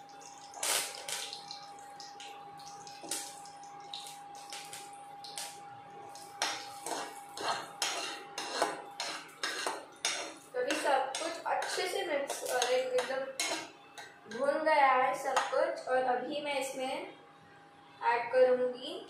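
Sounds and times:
spices sizzling in hot oil: 0.0s - 14.4s
spoon clinking against pan: 6.4s - 14.2s
spoon scraping in pan: 6.4s - 14.5s.

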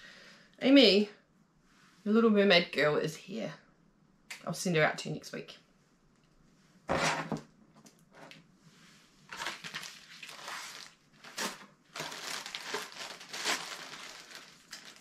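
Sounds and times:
plastic bag crinkling: 9.3s - 15.0s.

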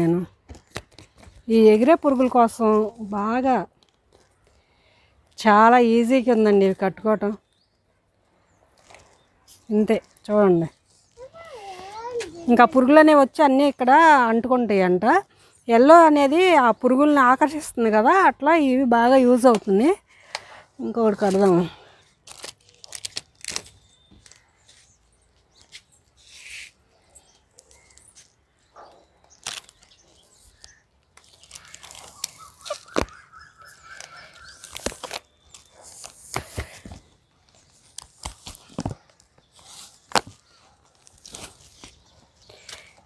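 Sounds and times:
plastic sheets crinkling: 21.0s - 26.3s, 29.2s - 43.0s.

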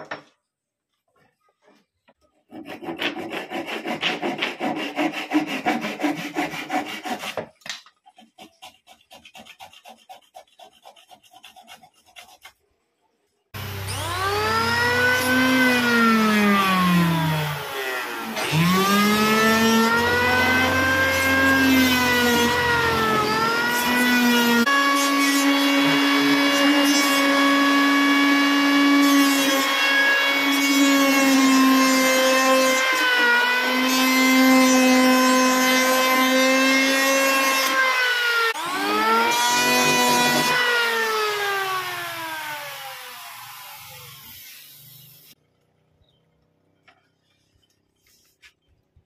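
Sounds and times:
electric hand planer cutting wood: 2.5s - 7.4s, 13.6s - 45.4s.

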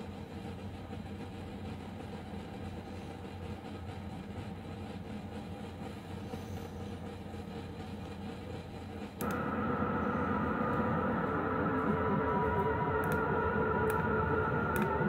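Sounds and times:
low rumbling synthesizer drone: 9.2s - 15.0s.

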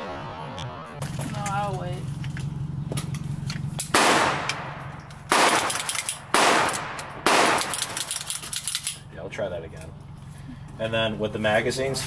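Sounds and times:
pistol metallic clicks: 3.0s - 9.0s
echoing gunshots: 3.9s - 8.1s.

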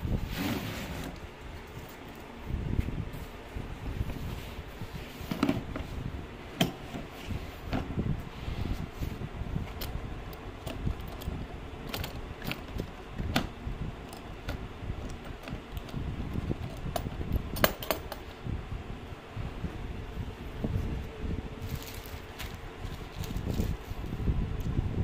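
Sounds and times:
metal latch clicks: 16.6s - 18.2s.

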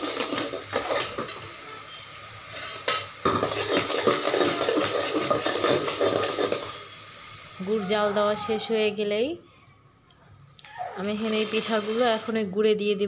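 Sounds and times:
metal spoon scraping a pot: 0.0s - 1.3s, 2.6s - 6.8s, 11.2s - 12.4s
syrup sizzling: 0.0s - 8.4s, 11.2s - 12.6s.

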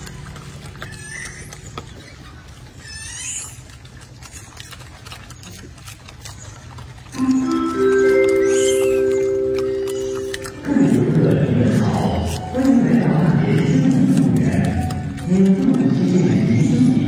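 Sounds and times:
music with bell-like tones: 7.2s - 10.6s
rising animal chirps: 7.2s - 10.6s.

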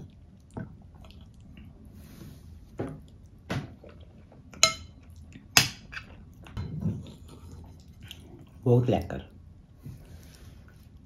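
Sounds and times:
spoon clinking on ceramic plate: 4.6s - 5.0s.

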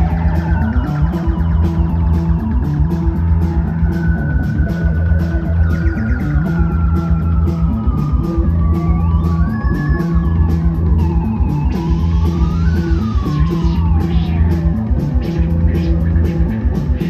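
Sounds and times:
drums with cymbal rhythm: 0.0s - 17.0s
held bass line: 0.0s - 17.0s
psychedelic rock band jamming: 0.0s - 17.0s.

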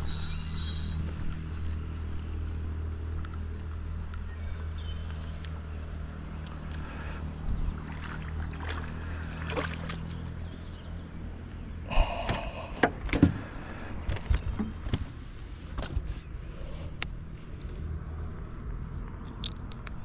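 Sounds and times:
fish splashing at water surface: 7.7s - 10.2s.

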